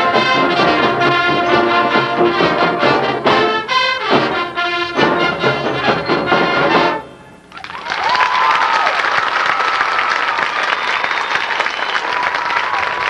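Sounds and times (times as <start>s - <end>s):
marching band brass and drums: 0.0s - 7.5s
crowd applause: 7.5s - 13.0s.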